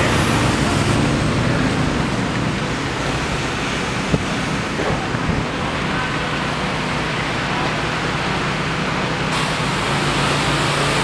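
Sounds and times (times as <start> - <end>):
outdoor rushing noise: 0.0 - 11.0
bright hiss: 9.3 - 11.0.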